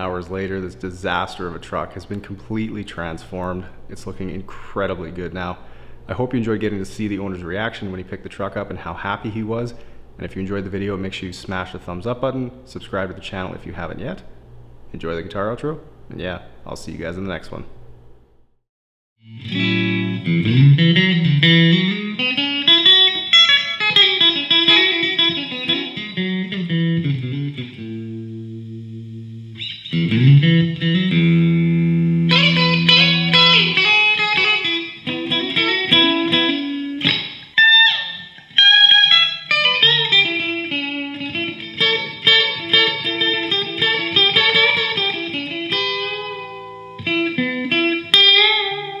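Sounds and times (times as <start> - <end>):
electric guitar instrumental: 19.2 - 49.0.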